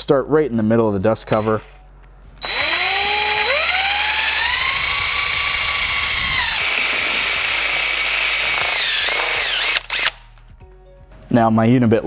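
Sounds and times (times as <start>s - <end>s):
cordless drill whining through plastic: 2.4s - 10.2s.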